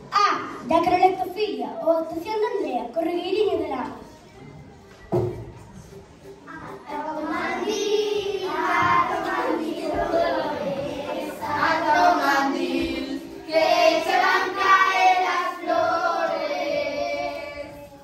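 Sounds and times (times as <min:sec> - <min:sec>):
children singing: 0:06.5 - 0:18.0.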